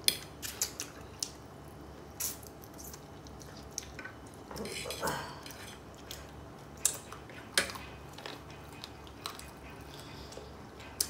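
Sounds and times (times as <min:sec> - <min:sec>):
chewing and mouth noises: 0:02.2 - 0:11.0.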